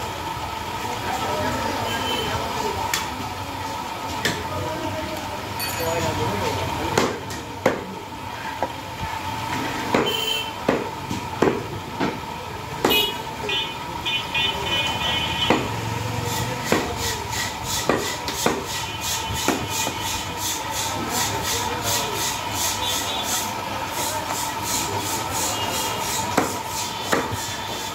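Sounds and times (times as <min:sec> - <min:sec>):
cleaver chopping meat and bone: 0:06.9 - 0:07.9, 0:09.8 - 0:12.2, 0:15.4 - 0:23.4, 0:24.0 - 0:27.6.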